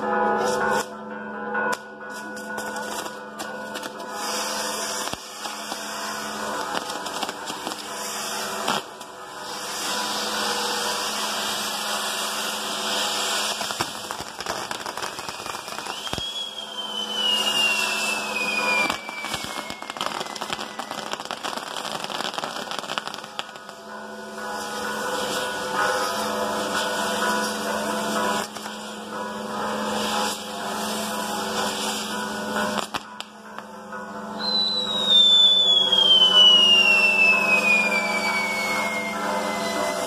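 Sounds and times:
fireworks crackling and hissing: 0:00.0 - 0:01.0, 0:02.0 - 0:33.7, 0:34.3 - 0:40.0
whistling firework: 0:03.8 - 0:23.8, 0:34.4 - 0:40.0.

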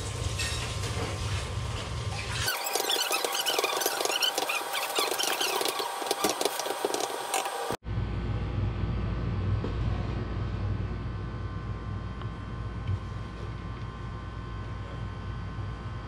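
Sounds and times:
rice sizzling in a wok: 0:00.0 - 0:02.4
steady low rumble: 0:07.8 - 0:16.0.

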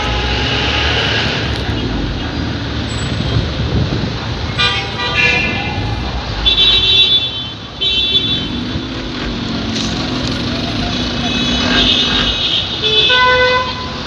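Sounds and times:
street traffic: 0:00.0 - 0:14.0
vehicle horns honking: 0:04.5 - 0:05.7, 0:06.4 - 0:09.1, 0:10.6 - 0:14.0.

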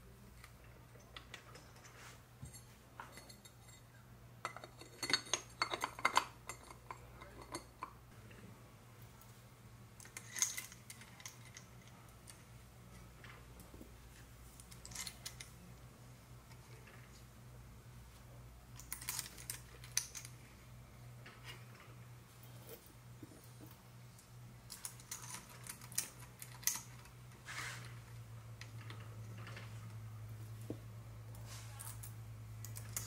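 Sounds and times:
metal parts and tools clinking: 0:01.0 - 0:08.0, 0:10.0 - 0:13.4, 0:14.6 - 0:15.6, 0:18.7 - 0:20.4, 0:24.7 - 0:30.0, 0:31.6 - 0:33.0.

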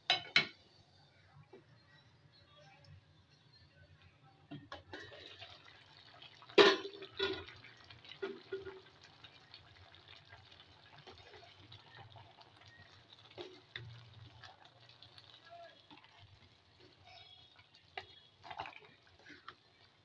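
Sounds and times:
food simmering with soft bubbling: 0:00.2 - 0:20.0
pot lid clanking: 0:06.6 - 0:07.5.

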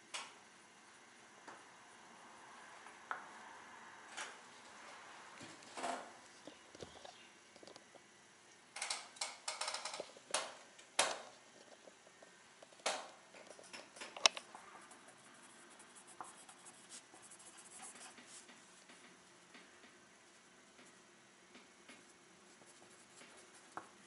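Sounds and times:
pencil scratching on paper: 0:14.8 - 0:18.6, 0:22.5 - 0:23.9.

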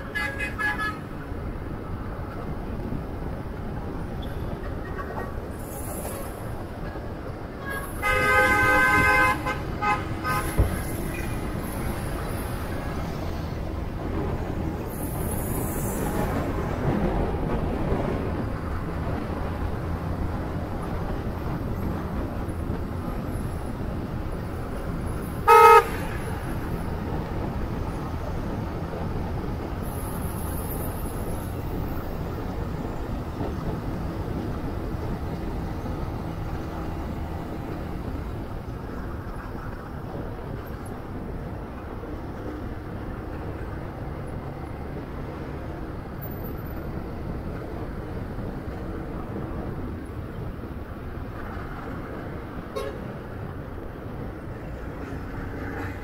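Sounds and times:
vehicle horn toot: 0:00.0 - 0:01.0, 0:07.6 - 0:10.6, 0:25.5 - 0:26.1, 0:52.7 - 0:53.0
wind noise: 0:00.0 - 0:56.0.

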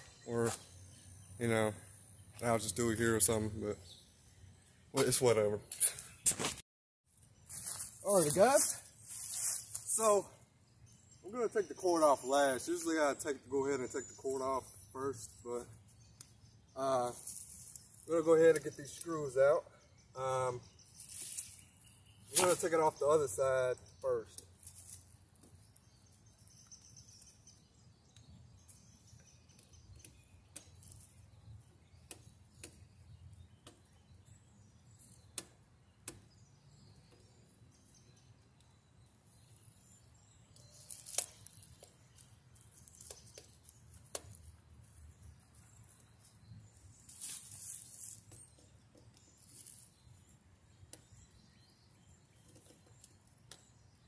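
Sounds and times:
faint scratchy rustling: 0:07.5 - 0:10.0, 0:24.5 - 0:26.0, 0:40.7 - 0:50.3.

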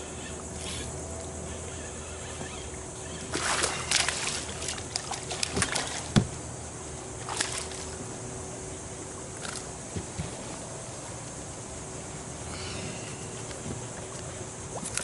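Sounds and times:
fish thrashing and splashing: 0:03.2 - 0:06.4, 0:07.2 - 0:08.0.

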